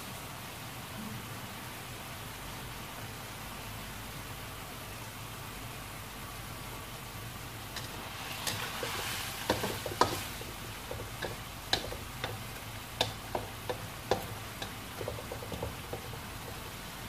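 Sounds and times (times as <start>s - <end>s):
food sizzling: 7.0s - 17.0s
spatula scraping a wok: 7.8s - 16.8s.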